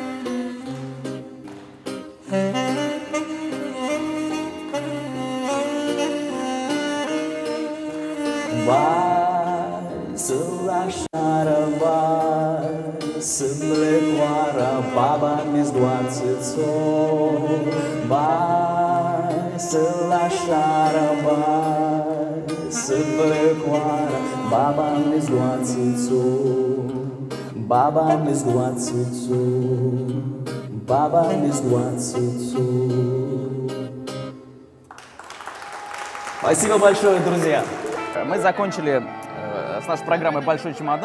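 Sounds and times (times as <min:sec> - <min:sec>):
alto saxophone solo: 0:00.0 - 0:12.7, 0:13.4 - 0:29.3
strummed acoustic guitar: 0:00.0 - 0:34.5.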